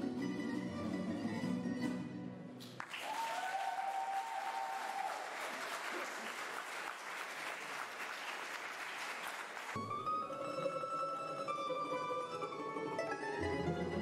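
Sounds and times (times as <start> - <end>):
audience applauding: 2.6 - 9.8.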